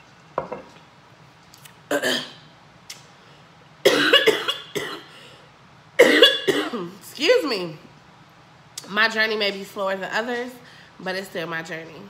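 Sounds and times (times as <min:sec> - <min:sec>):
glass pitcher set down: 0:00.4 - 0:00.7
woman coughing: 0:01.9 - 0:02.4, 0:03.8 - 0:05.2, 0:06.0 - 0:07.0.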